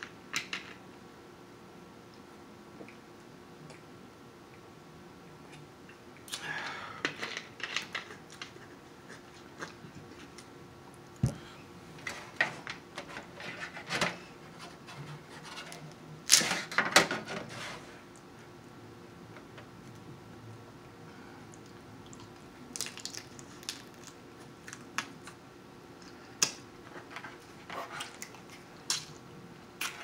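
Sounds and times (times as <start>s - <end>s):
crab shells cracking: 22.7s - 25.2s.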